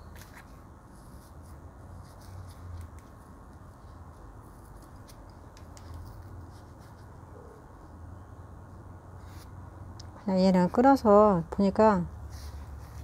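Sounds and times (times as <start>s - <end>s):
stick scratching soil: 0.1s - 7.4s.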